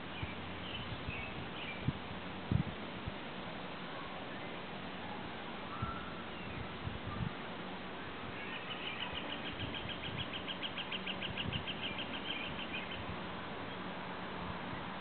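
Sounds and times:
background hiss: 0.0 - 15.0
bird trilling: 8.4 - 13.0.

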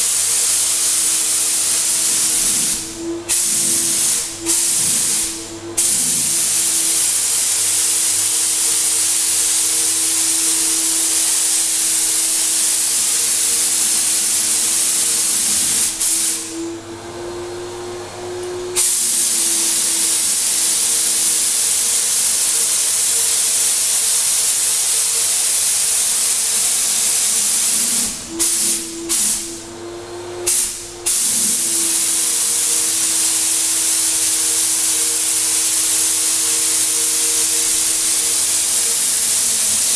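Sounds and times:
paint spray gun hissing: 0.0 - 16.6, 18.7 - 29.5, 30.5 - 39.9
turbine humming: 2.3 - 6.4, 15.4 - 18.8, 27.5 - 31.0.

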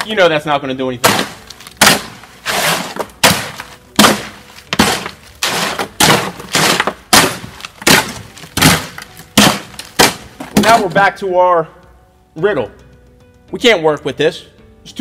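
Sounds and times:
hoe scraping concrete: 1.2 - 9.8.

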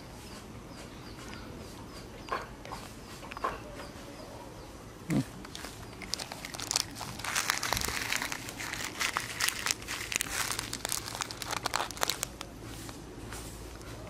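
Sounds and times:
crinkling handling noise: 5.3 - 14.0.

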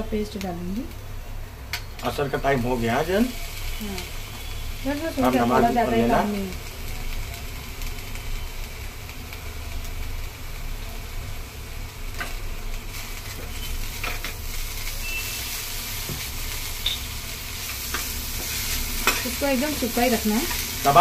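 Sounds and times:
chicken sizzling in a frying pan: 0.0 - 21.0
spoon scraping a pan: 17.8 - 19.4.

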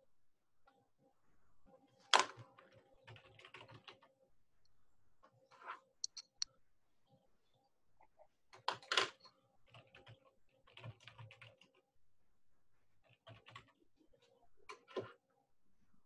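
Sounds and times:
typing on a keyboard: 2.1 - 4.2, 8.6 - 11.9, 13.0 - 13.8.

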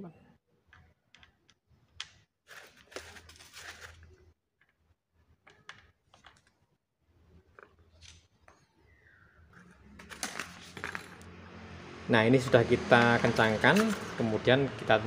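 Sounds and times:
rustling on cardboard: 2.4 - 4.1.

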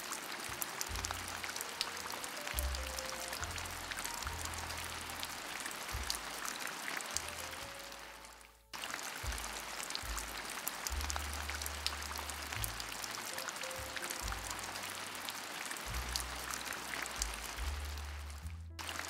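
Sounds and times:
rain hissing and pattering: 0.0 - 19.0
music with deep bass: 0.5 - 6.4, 9.2 - 15.3, 15.9 - 19.0.

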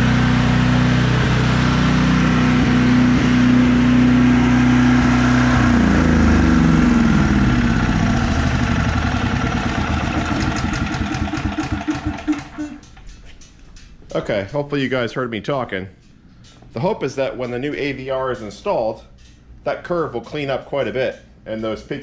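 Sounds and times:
generator engine running: 0.0 - 13.1.

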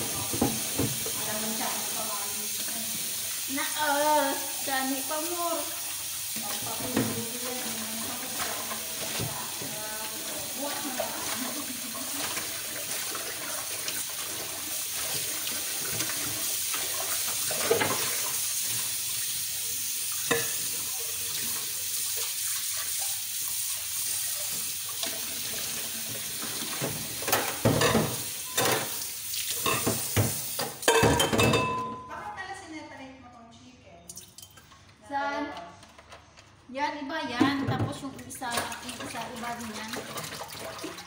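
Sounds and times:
tap water running into sink: 0.0 - 31.5, 37.7 - 41.0
dishes clattering: 17.5 - 18.2, 20.2 - 20.8, 26.5 - 29.0, 29.6 - 32.1.

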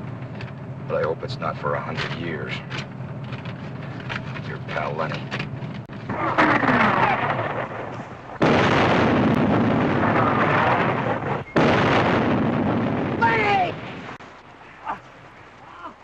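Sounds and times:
artillery explosions: 5.9 - 14.2.

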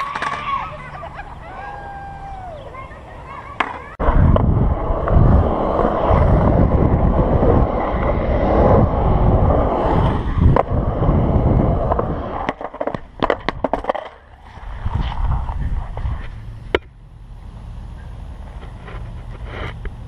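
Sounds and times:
skateboard clacks and knocks: 0.0 - 0.7, 3.4 - 7.0
skateboard wheels rumbling on concrete: 0.0 - 20.0.

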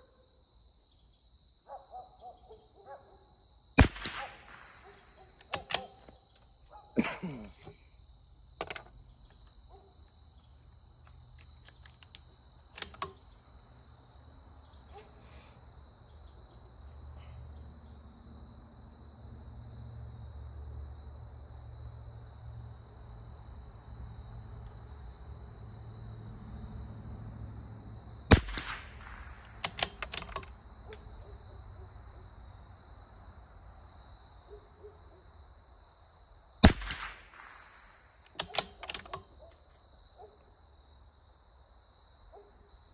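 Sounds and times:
rifle bolt metallic clicks: 3.8 - 4.7, 5.4 - 6.5, 11.0 - 13.3, 28.3 - 31.1, 36.6 - 37.7, 38.3 - 39.8
rifle shots: 3.8 - 6.0, 28.3 - 30.4, 36.6 - 39.2.

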